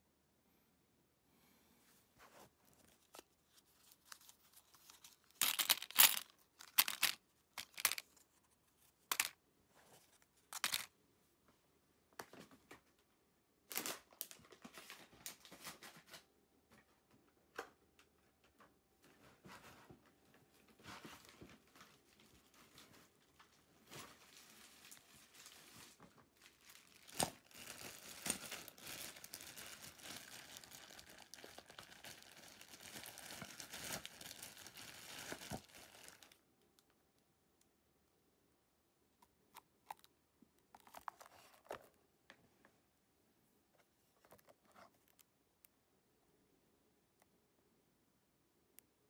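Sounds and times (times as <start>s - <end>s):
rustling and crinkling: 1.8s - 10.9s, 13.7s - 17.2s, 18.4s - 36.4s, 39.8s - 42.8s.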